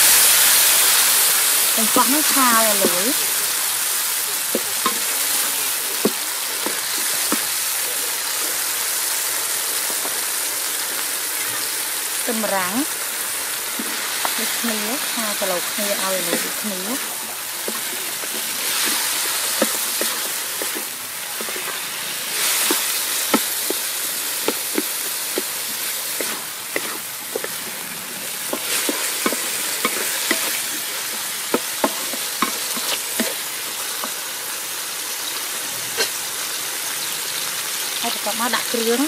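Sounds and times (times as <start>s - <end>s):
vegetables sizzling in oil: 0.0s - 39.0s
wooden spatula scraping wok: 12.6s - 34.2s.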